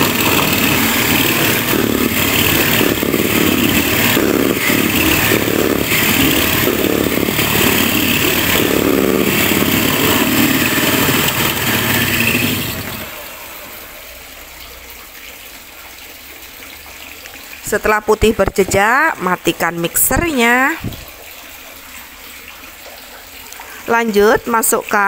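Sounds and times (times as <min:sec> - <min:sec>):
electric hand mixer whipping: 0:00.0 - 0:14.1.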